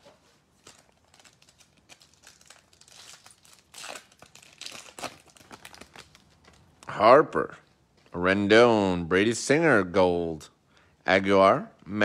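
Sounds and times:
foil wrapper tearing and crinkling: 0.6s - 6.7s.

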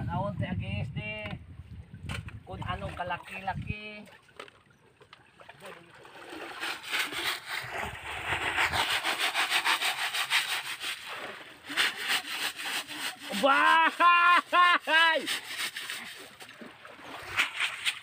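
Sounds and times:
scraping strokes: 6.4s - 14.0s, 14.9s - 16.5s
person calling out: 13.2s - 15.3s.

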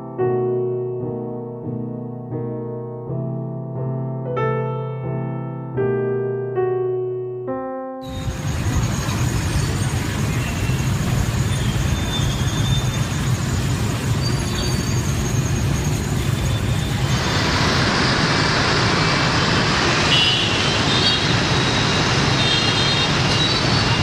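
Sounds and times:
hissy traffic din: 8.1s - 24.0s
traffic engines rumbling: 8.1s - 24.0s.

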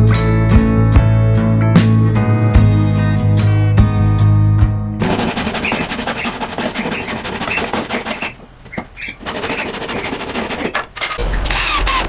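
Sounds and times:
handsaw rasping through wood: 5.0s - 10.9s.

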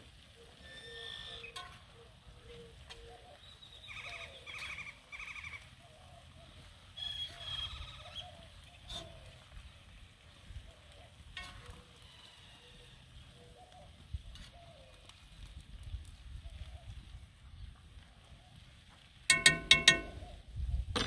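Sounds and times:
faint sizzle: 0.0s - 20.5s
utensil clinking against pan: 19.3s - 20.3s.

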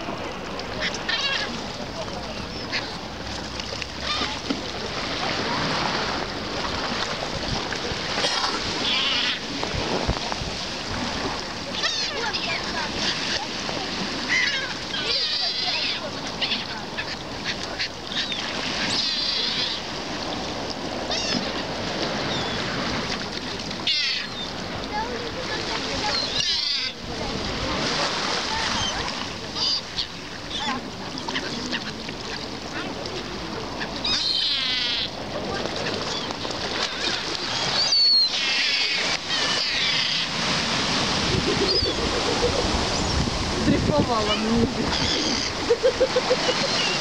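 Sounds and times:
sea water lapping: 0.0s - 47.0s
gulls calling: 0.3s - 6.2s, 6.9s - 10.1s, 10.8s - 20.0s, 21.0s - 23.0s, 23.8s - 47.0s
wind on microphone: 9.5s - 11.6s, 40.4s - 47.0s.

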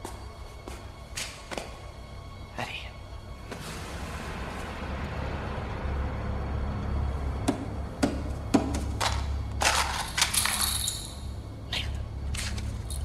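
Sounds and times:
matches scattering on hard floor: 9.0s - 11.3s.

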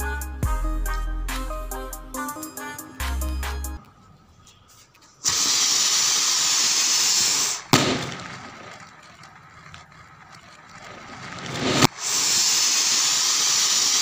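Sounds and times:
rocket firework hissing: 5.2s - 8.6s, 11.3s - 14.0s
firework bang: 7.7s - 8.8s, 10.9s - 11.9s.

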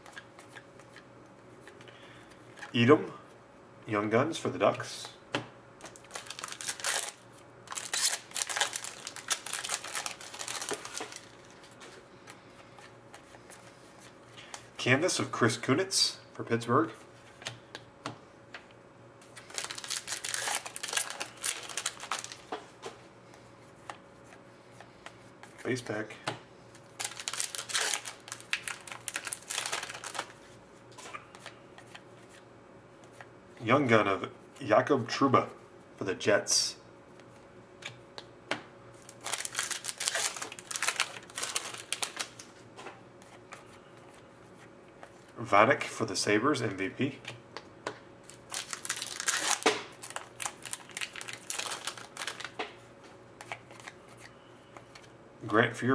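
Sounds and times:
foil wrapper tearing and crinkling: 5.9s - 11.6s, 19.4s - 22.4s, 26.9s - 30.3s, 39.0s - 42.5s, 48.3s - 52.6s.

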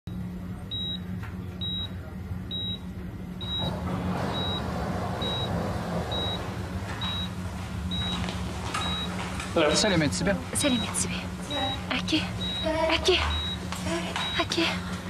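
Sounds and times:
patient monitor beeping: 0.1s - 14.9s
low electrical hum: 0.1s - 15.0s.

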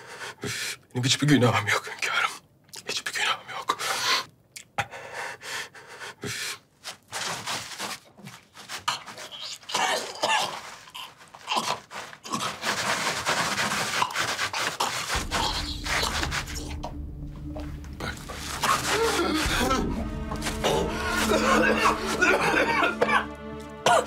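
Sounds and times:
man breathing hard: 0.0s - 0.8s, 4.8s - 6.7s
low steady music: 15.2s - 24.0s
man coughing: 20.6s - 24.0s.

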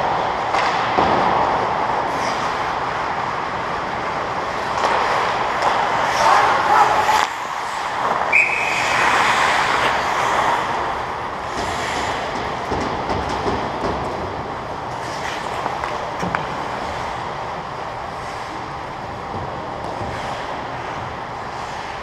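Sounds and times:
skates scraping on ice: 0.0s - 22.0s
hockey stick clicks: 0.4s - 1.4s, 4.6s - 6.3s, 7.0s - 10.8s, 15.0s - 16.8s
short high whistle blast: 8.3s - 8.8s.

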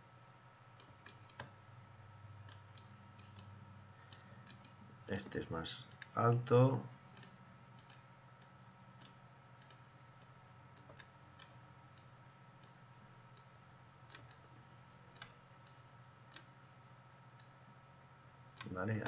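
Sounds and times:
low steady hum: 0.0s - 19.0s
computer mouse clicks: 0.8s - 1.6s, 2.4s - 3.5s, 4.1s - 4.8s, 7.2s - 12.8s, 14.1s - 14.5s, 15.1s - 16.5s.

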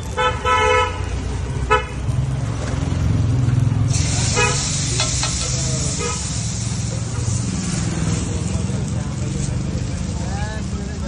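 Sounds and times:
traffic rumble: 0.0s - 11.0s
hot griddle sizzling: 3.8s - 11.0s
liquid hissing on griddle: 3.9s - 11.0s
car horn toots: 4.3s - 4.7s.

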